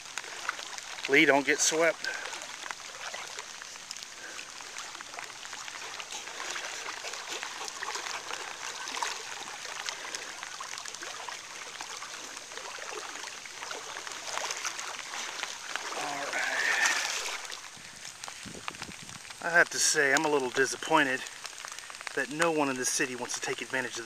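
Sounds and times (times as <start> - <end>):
small water splashes: 0.0 - 24.0
water rushing: 0.0 - 24.0.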